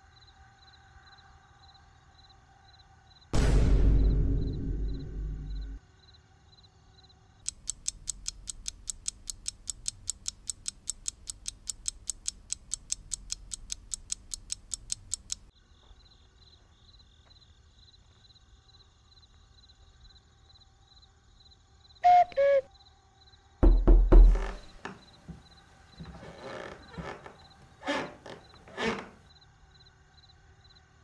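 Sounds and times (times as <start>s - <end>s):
loud low rumble: 3.4s - 5.8s
clock ticking fast: 7.5s - 15.5s.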